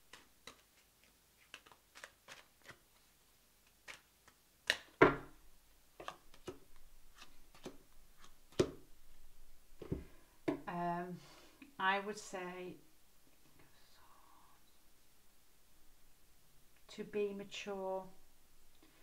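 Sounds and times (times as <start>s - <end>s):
cards clicking and tapping: 0.1s - 2.8s, 3.6s - 5.2s, 6.0s - 8.8s.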